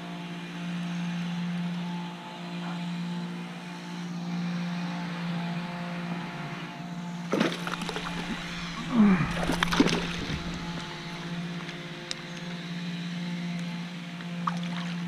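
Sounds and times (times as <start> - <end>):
steady low hum: 0.0 - 15.0
fish splashing at water surface: 7.3 - 11.3.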